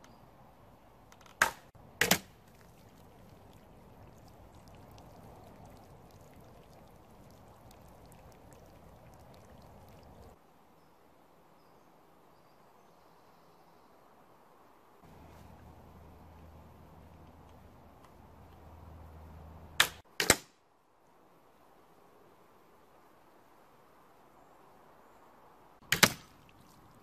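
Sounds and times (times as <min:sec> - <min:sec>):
water running out of bottle: 0:02.1 - 0:10.4.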